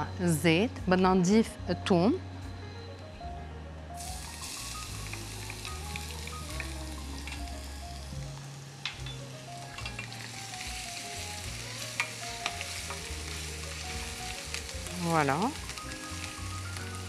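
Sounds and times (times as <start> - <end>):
garlic sizzling in hot oil: 4.0 - 17.0.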